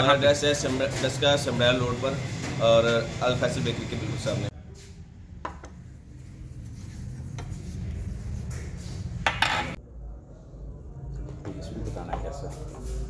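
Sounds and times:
dishes clattering: 9.3s - 9.8s
plates and cutlery clinking: 9.3s - 9.8s.

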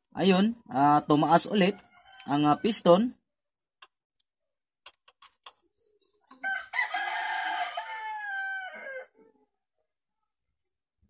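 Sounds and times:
rooster crowing: 1.7s - 2.9s, 6.3s - 9.2s.

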